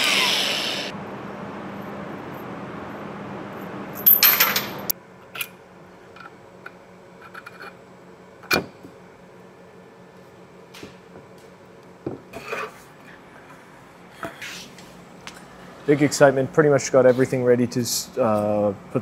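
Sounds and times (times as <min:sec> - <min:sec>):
metal parts clinking: 0:04.0 - 0:05.5.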